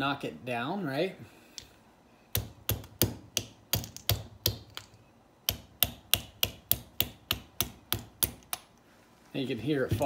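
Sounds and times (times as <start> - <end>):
hammer tapping on metal: 5.5 - 8.5.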